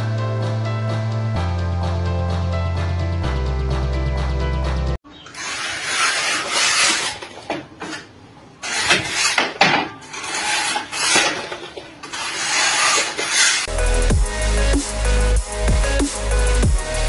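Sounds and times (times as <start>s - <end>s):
wire tool scraping cement render: 5.3s - 8.0s, 8.6s - 13.7s.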